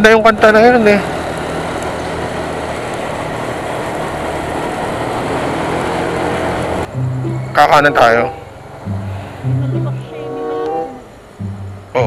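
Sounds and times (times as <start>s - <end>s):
wind and road noise: 0.0s - 12.0s.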